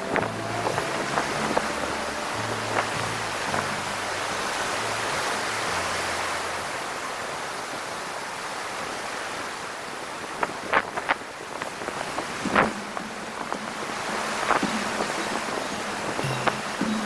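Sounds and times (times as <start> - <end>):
surf breaking against breakwater: 0.0 - 17.0
wind: 0.0 - 17.0.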